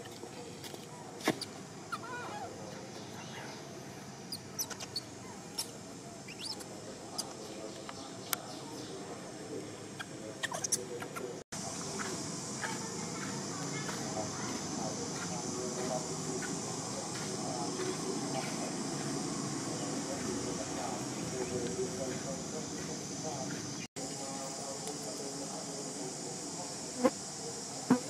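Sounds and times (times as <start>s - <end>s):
high-pitched animal chirps and squeaks: 1.9s - 2.5s, 4.3s - 5.7s, 6.3s - 7.3s, 10.0s - 10.8s.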